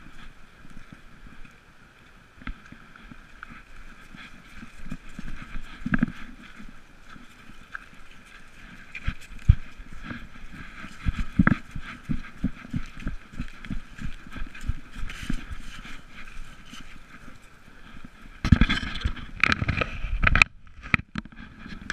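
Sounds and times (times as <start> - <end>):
constant rattle: 2.4 - 21.9
rough scuffing noise: 3.4 - 20.3.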